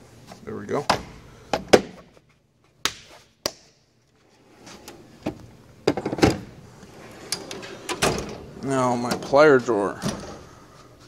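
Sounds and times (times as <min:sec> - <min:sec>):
steel drawer clattering: 0:05.9 - 0:10.5.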